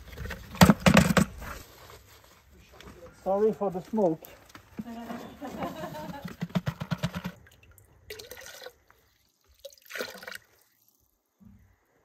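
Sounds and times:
powder shaken from plastic tub: 5.6s - 7.4s
water pouring into bucket: 7.1s - 11.1s.

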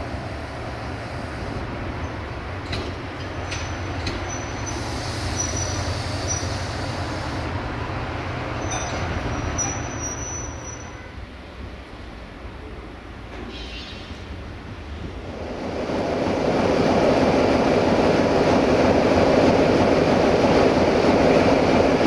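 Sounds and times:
high wheel squeal: 3.6s - 6.6s, 8.6s - 11.1s.

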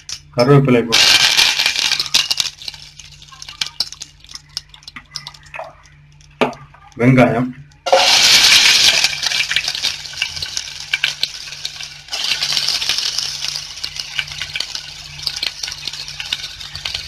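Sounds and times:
onions sizzling in hot oil: 0.9s - 5.4s, 7.9s - 17.0s.

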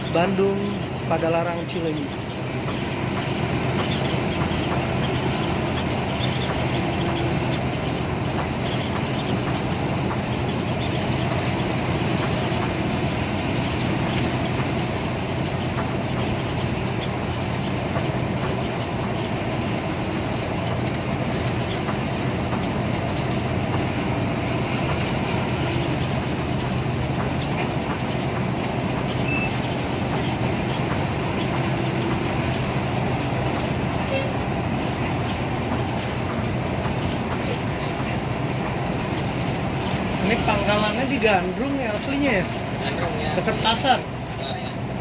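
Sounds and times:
engine drone: 0.0s - 45.0s
tyre and road noise: 0.0s - 45.0s.

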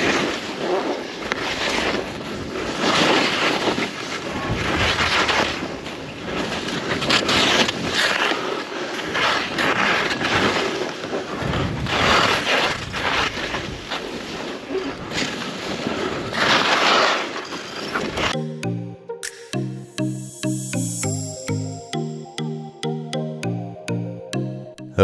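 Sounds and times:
skis scraping over snow: 0.1s - 18.1s.

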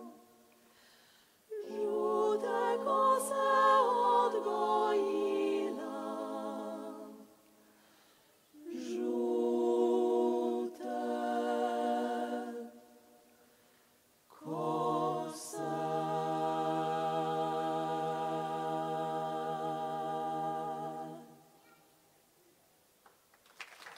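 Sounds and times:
women singing close harmony: 1.5s - 7.4s, 8.6s - 13.0s, 14.3s - 21.5s.

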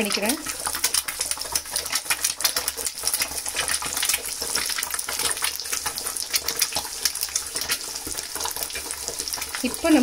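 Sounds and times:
eggs sizzling in oil: 0.0s - 10.0s
oil spitting crackle: 0.0s - 10.0s.

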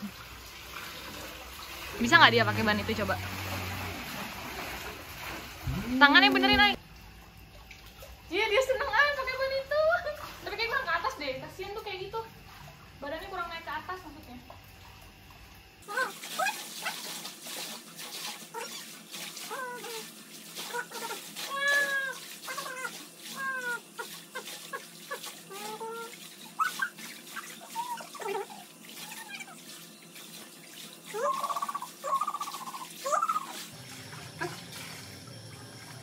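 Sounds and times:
water splashing and lapping: 0.0s - 36.0s.

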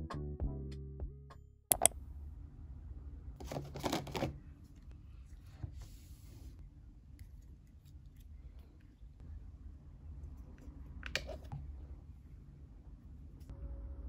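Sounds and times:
sharp clicks of plastic containers: 1.7s - 1.9s
rustling and handling noise: 3.4s - 9.2s.

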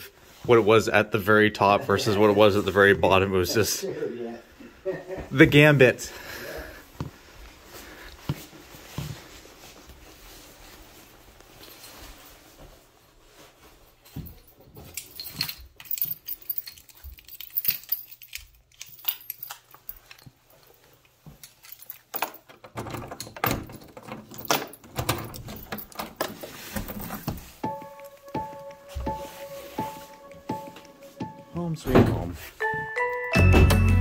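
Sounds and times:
keys jangling: 14.2s - 31.3s.

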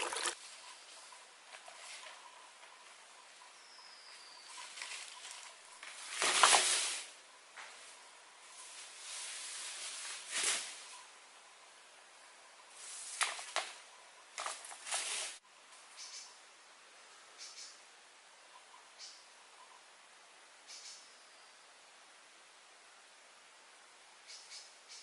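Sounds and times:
hand scraping and rustling: 14.4s - 15.4s.

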